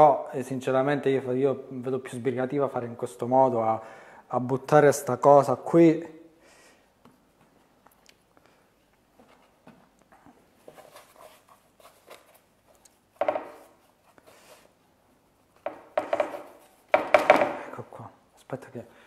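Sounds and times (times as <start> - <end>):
dough rubbing: 10.4 - 17.1
baking tray knock: 15.7 - 17.6.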